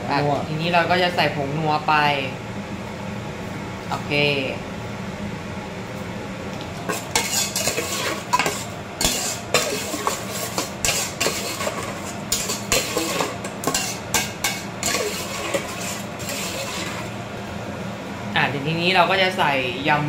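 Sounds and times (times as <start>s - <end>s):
metal ladle scraping steel bowl: 6.9s - 17.2s.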